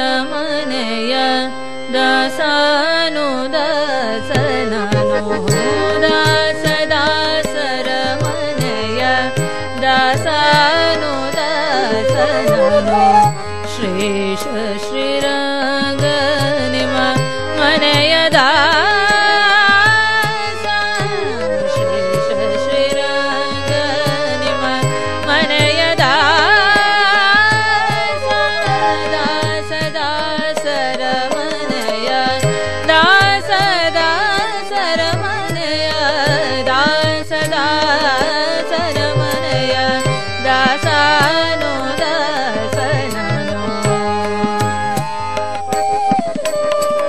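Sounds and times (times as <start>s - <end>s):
tabla: 0.0s - 47.0s
woman singing devotional song: 0.0s - 47.0s.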